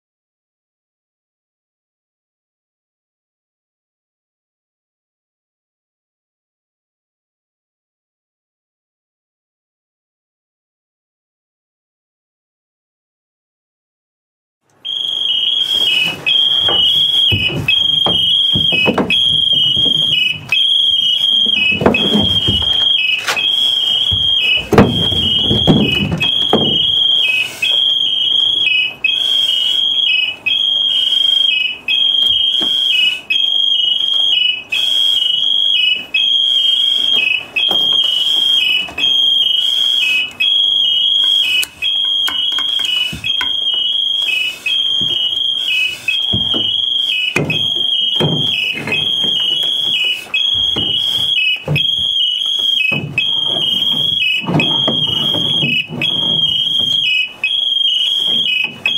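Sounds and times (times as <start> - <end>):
electronic alarm tone: 14.9 - 58.9.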